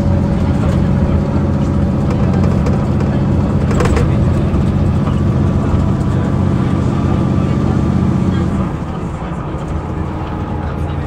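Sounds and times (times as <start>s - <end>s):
diesel bus engine idling: 0.0s - 11.0s.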